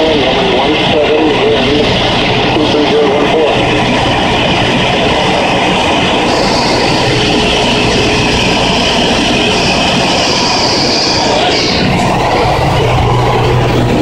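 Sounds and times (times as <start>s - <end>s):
airplane engine and propeller drone: 0.0s - 14.0s
wind noise: 0.0s - 14.0s
high hiss: 5.1s - 14.0s.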